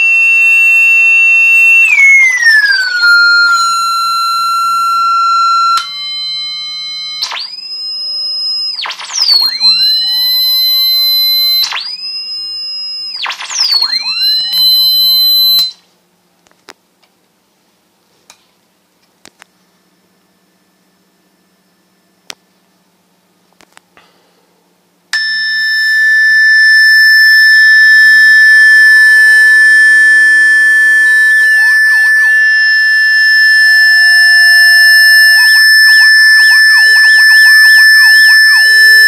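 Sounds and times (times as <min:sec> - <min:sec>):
loud electronic tone: 0:00.0 - 0:15.8, 0:25.2 - 0:39.0.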